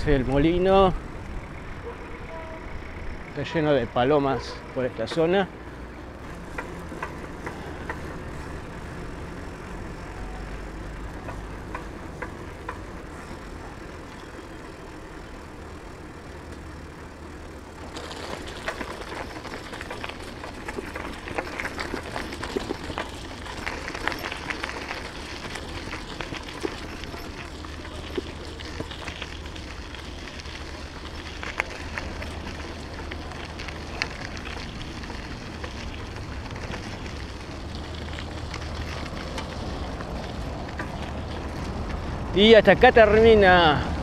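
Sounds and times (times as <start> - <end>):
bicycle tyres rumbling on road: 0.0 - 44.0
crackling and rattling: 16.5 - 42.9.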